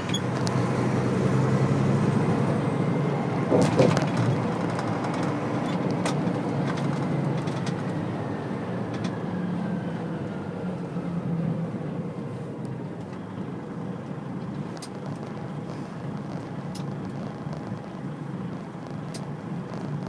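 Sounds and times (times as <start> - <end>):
vehicle engine and road rumble: 0.0 - 20.0.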